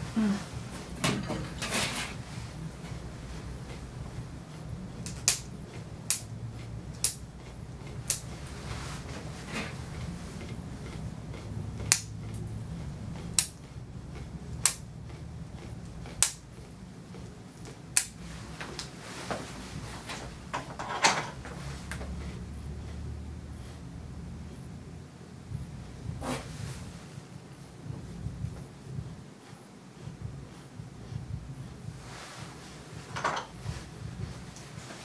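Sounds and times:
nail clippers clicking: 5.0 - 5.5, 13.2 - 13.6.

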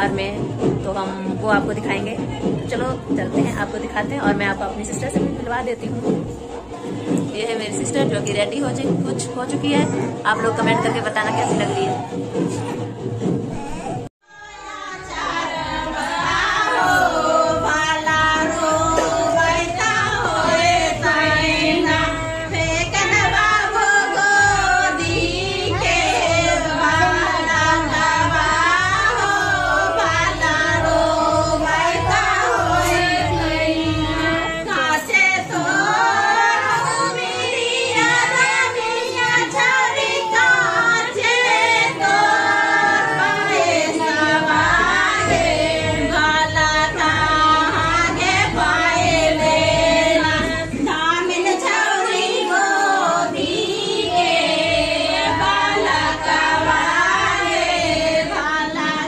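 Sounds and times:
women singing folk song: 14.3 - 59.0.

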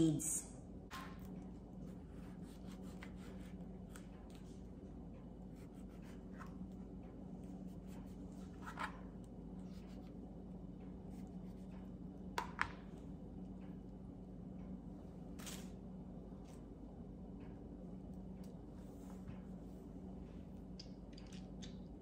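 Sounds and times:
low hum: 0.0 - 22.0.

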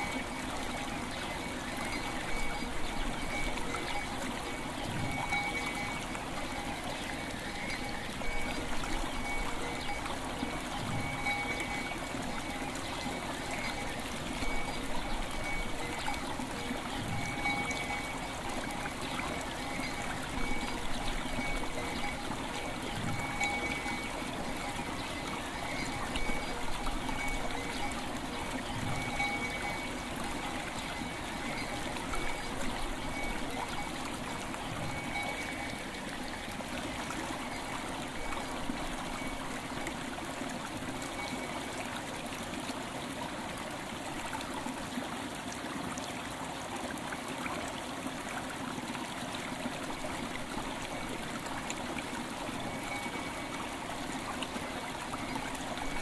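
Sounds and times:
light bell tones: 0.0 - 35.9, 52.5 - 53.8
stream flowing over stones: 0.0 - 56.0.

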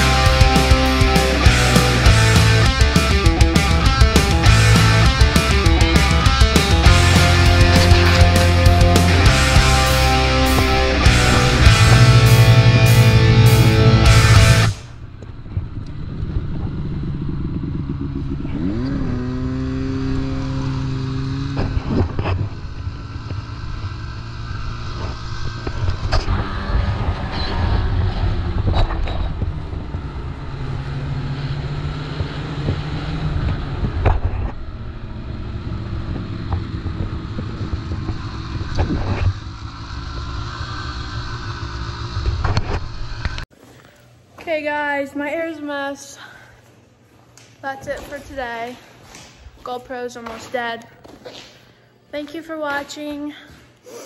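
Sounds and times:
snowmobile engine revving: 0.0 - 14.9, 15.6 - 43.4.

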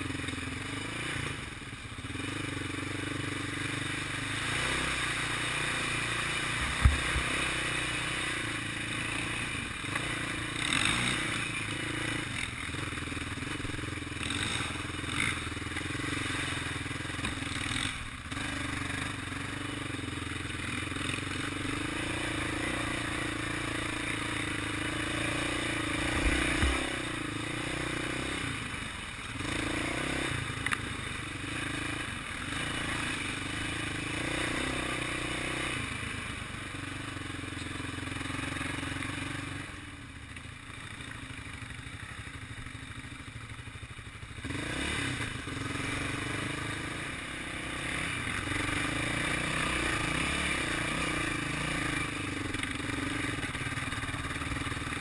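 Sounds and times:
atv engine running: 0.0 - 55.0
low thumps from bumps: 6.7 - 7.3.

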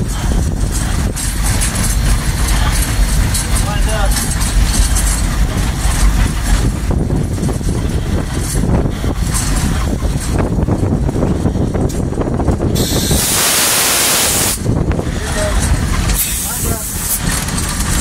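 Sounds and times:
locomotive cab rattling and clanking: 0.0 - 13.6, 14.3 - 18.0
loud steam hiss: 12.7 - 14.7, 16.2 - 17.3.

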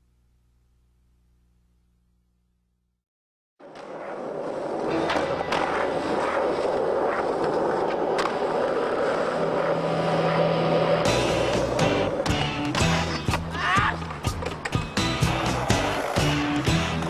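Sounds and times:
skateboard clacks: 3.6 - 9.7, 11.1 - 17.0
skateboard wheels rolling on concrete: 3.6 - 17.0.

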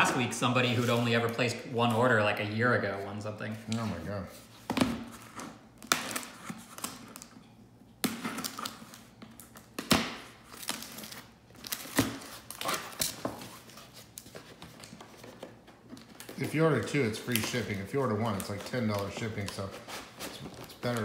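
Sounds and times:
scissors cutting packing tape: 9.8 - 13.3
cardboard scraping and crinkling: 17.3 - 21.0.

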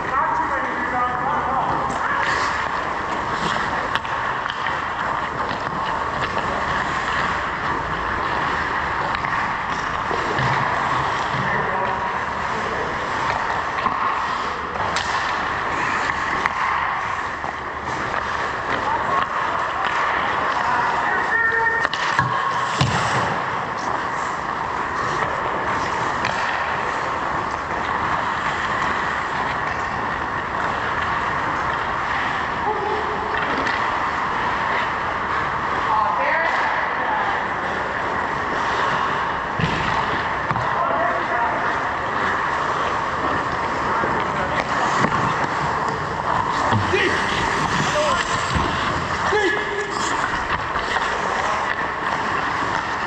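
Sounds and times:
ice rink hum: 0.0 - 53.0
faint clicks from hockey play: 1.9 - 7.3, 8.6 - 12.0, 13.1 - 20.7, 24.9 - 32.4, 33.3 - 35.0.

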